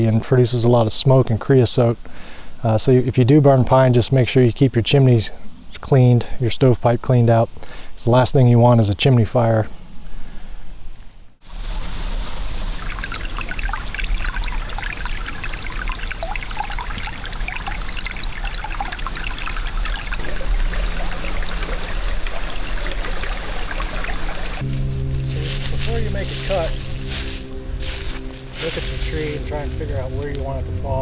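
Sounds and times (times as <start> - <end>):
creek babbling over rocks: 12.6 - 24.6.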